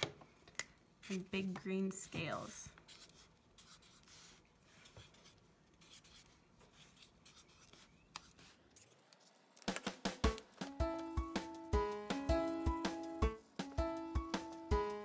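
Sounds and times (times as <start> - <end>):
marker scratching on paper: 2.2 - 9.0.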